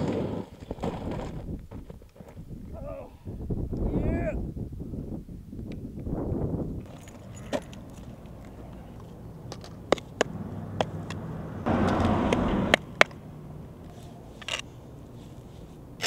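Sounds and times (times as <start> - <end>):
vehicle running: 6.9 - 16.0.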